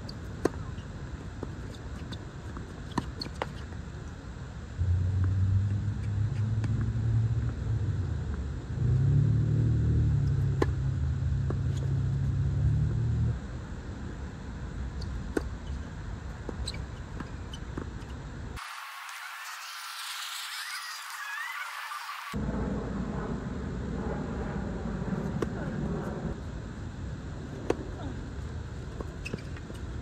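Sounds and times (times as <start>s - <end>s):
vehicle engine hum: 4.4s - 18.6s.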